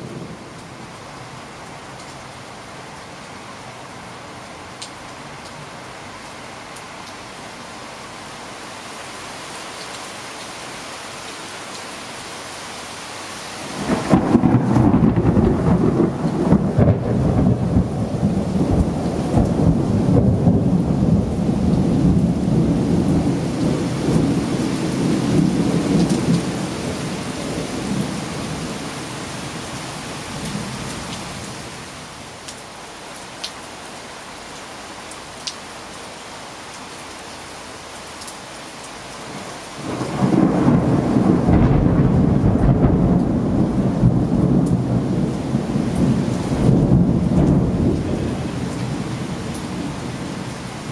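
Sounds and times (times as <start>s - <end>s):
steady rain hissing: 0.0s - 50.9s
thunder clap and rumble: 13.7s - 28.6s, 39.8s - 50.4s.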